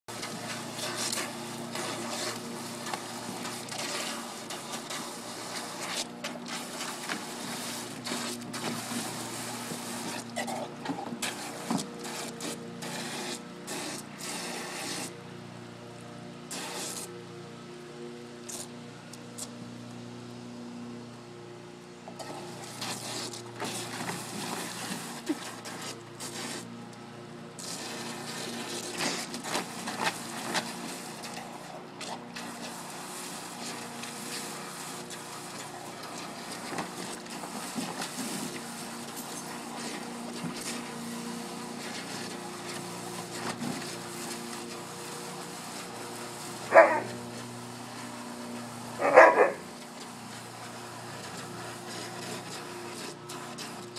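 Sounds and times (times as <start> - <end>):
dog splashing in water: 0.2 - 14.9, 27.6 - 48.4
dog barking: 46.7 - 47.1, 49.0 - 49.6.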